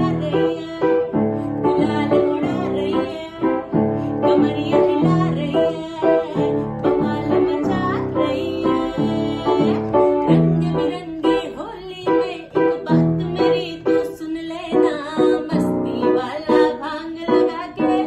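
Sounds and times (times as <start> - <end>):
person singing: 0.0 - 18.0
upright piano playing: 0.0 - 18.0.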